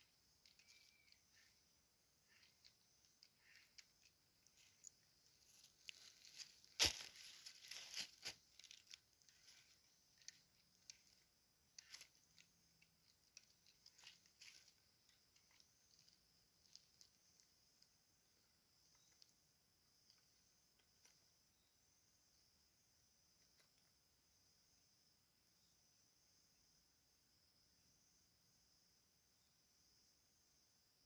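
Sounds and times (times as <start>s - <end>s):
insects hissing: 0.0s - 26.8s
small crackles and clicks: 0.4s - 1.5s, 2.3s - 17.9s.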